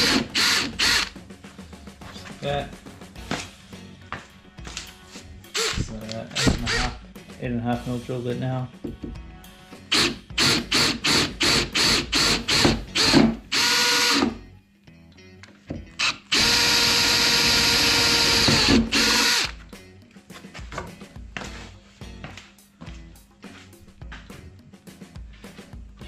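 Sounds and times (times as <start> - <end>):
cordless drill boring through metal: 0.0 - 1.1, 5.6 - 6.9, 9.9 - 14.3, 16.0 - 19.5.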